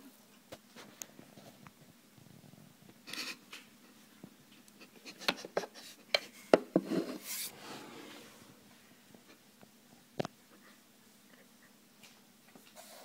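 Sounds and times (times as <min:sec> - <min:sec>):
bowl rubbing on plastic tray: 0:06.8 - 0:08.4.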